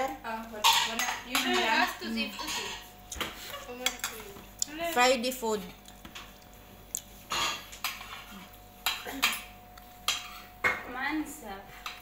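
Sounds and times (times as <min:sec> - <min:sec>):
spoons clinking against plates: 0:00.5 - 0:04.4, 0:07.3 - 0:10.9.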